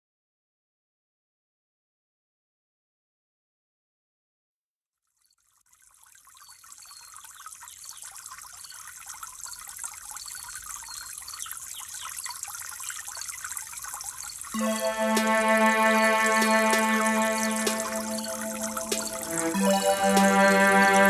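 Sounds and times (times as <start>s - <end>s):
trickling water: 5.0s - 21.0s
background music: 14.6s - 21.0s.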